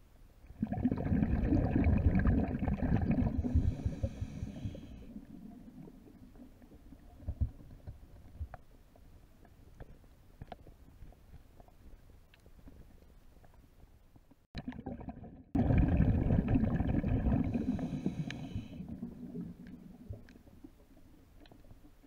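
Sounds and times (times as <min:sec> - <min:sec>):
loud underwater gurgling rumble: 0:00.6 - 0:03.9, 0:15.0 - 0:17.8
faint underwater crackling clicks: 0:05.2 - 0:14.8, 0:17.8 - 0:18.6, 0:19.2 - 0:22.0.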